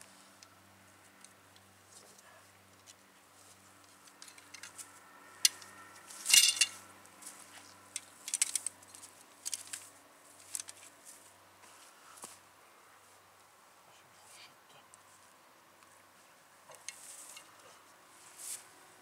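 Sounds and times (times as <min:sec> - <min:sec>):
metal trap clinking and clanking: 0:06.2 - 0:06.8, 0:08.0 - 0:08.7
ringing metal clatter: 0:06.2 - 0:06.8.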